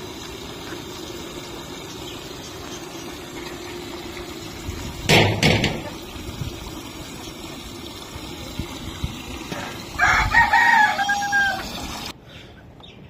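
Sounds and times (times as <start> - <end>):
tap water running into steel bowl: 0.0 - 12.1
rooster crowing: 10.0 - 11.9.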